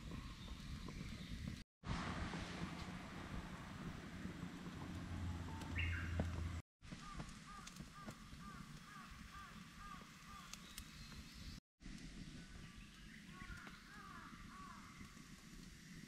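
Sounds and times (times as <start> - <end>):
bird calling: 5.3 - 11.6.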